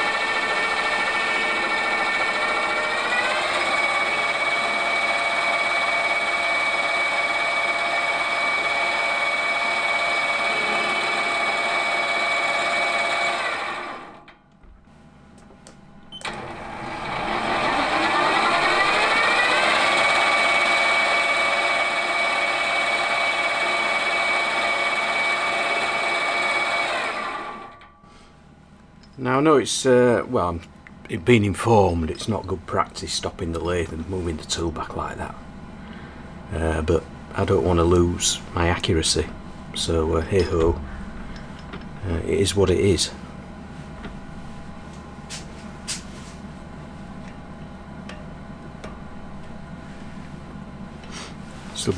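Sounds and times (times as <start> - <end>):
metal lathe whining: 0.0 - 14.2, 16.2 - 27.9.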